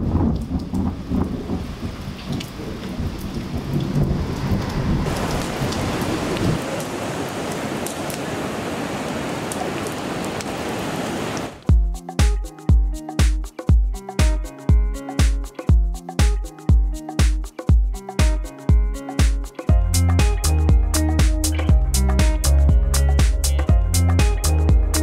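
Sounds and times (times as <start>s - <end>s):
low rumbling thunder: 0.0s - 6.6s
rain falling: 0.0s - 11.7s.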